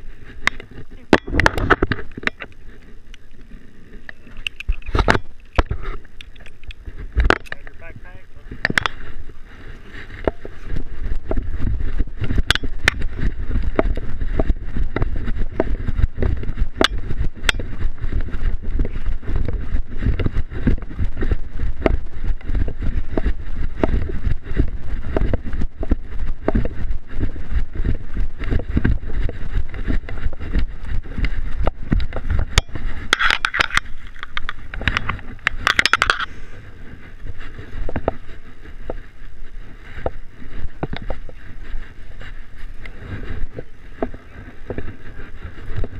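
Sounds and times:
small clicks and rattles: 0:00.3 - 0:07.9, 0:27.8 - 0:36.3.

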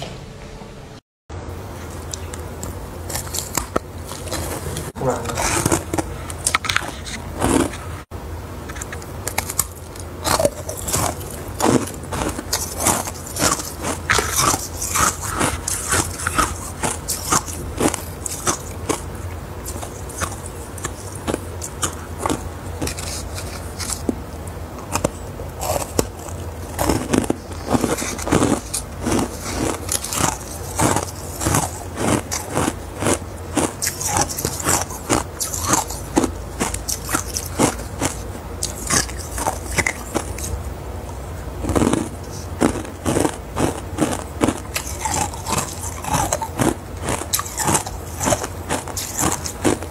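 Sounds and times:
chewing ice cubes crunching: 0:01.8 - 0:07.9, 0:08.7 - 0:40.6, 0:41.5 - 0:49.9.

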